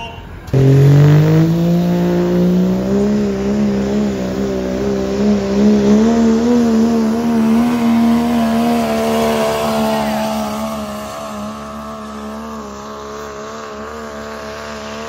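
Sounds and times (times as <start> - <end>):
diesel truck engine at high revs: 0.2 - 15.0.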